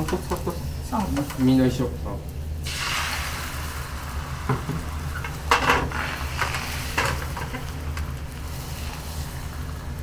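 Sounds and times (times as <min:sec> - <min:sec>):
egg sizzling in a frying pan: 0:00.0 - 0:10.0.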